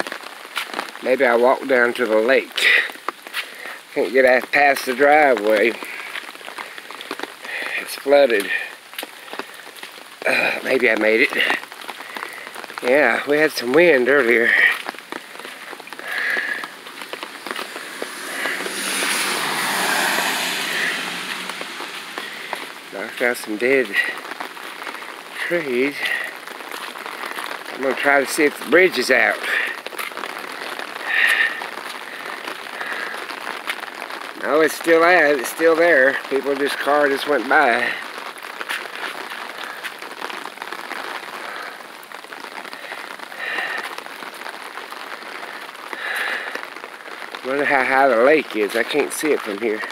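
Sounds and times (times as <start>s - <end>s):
rain on wet ground: 0.0s - 49.9s
rushing noise: 15.2s - 24.2s.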